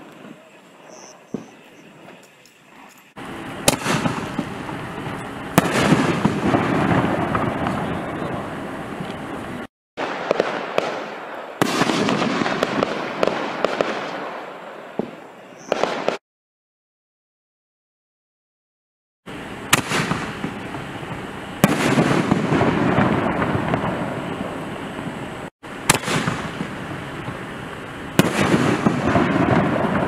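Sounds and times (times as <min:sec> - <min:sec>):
firework shell bangs: 0:03.6 - 0:04.6, 0:25.9 - 0:26.7
firework pops and crackle: 0:03.6 - 0:07.9, 0:19.8 - 0:20.7, 0:25.9 - 0:30.0.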